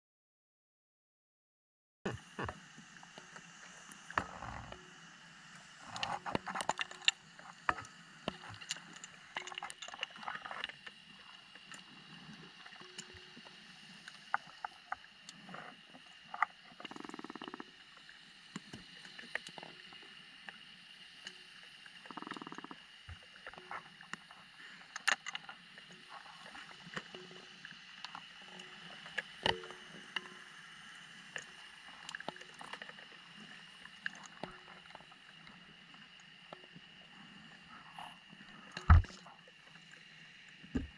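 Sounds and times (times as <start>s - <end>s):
underwater clicks and knocks: 5.9s - 10.9s, 26.8s - 30.4s, 38.7s - 39.2s.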